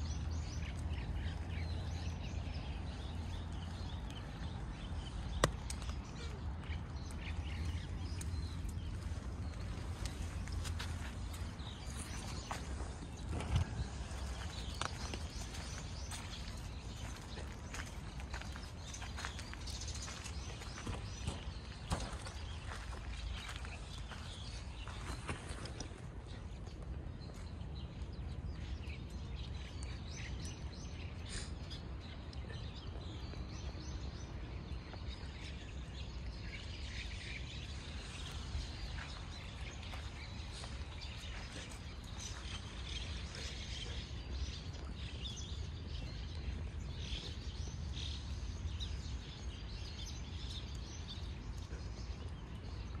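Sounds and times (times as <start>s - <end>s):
birds chirping: 0.0s - 53.0s
steady low rumble: 0.0s - 53.0s.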